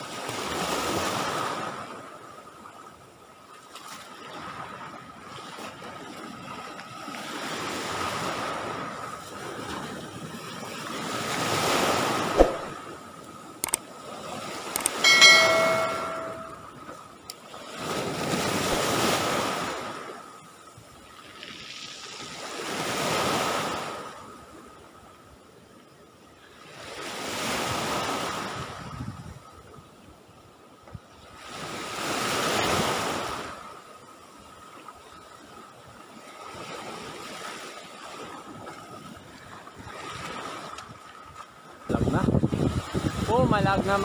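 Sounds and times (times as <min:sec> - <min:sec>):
sea waves washing ashore: 0:00.0 - 0:16.7, 0:17.4 - 0:28.9, 0:31.2 - 0:44.0
sharp knock: 0:12.4 - 0:12.8
brief high pitched sound: 0:15.1 - 0:16.6.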